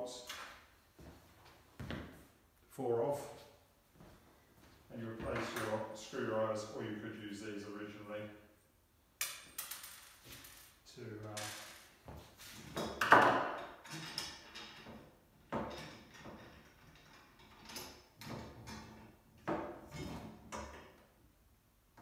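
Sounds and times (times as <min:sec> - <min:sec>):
bolts knocking on metal frame: 0:12.8 - 0:21.0.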